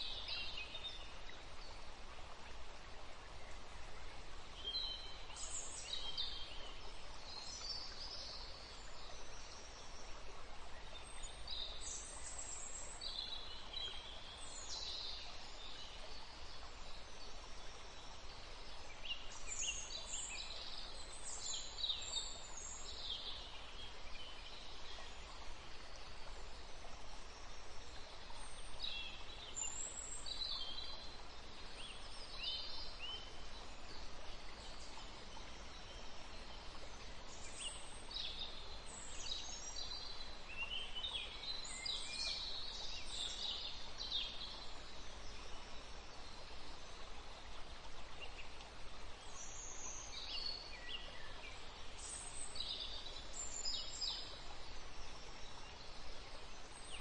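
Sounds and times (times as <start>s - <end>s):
steady background hiss: 0.0s - 57.0s.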